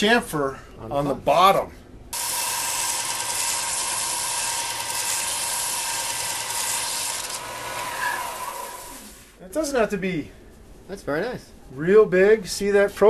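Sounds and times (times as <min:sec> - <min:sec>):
power tool cutting wood: 0:02.2 - 0:09.3.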